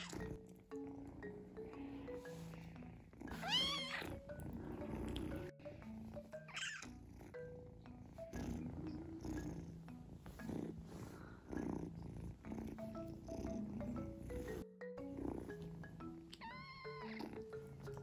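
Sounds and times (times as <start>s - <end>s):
kitten purring: 0.0s - 18.0s
kitten mewing: 3.3s - 4.3s, 16.4s - 17.4s.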